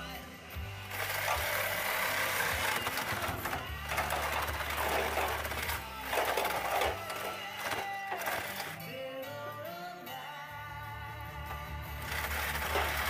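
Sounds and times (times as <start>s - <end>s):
reciprocating saw cutting metal: 0.8s - 9.0s, 12.0s - 13.0s.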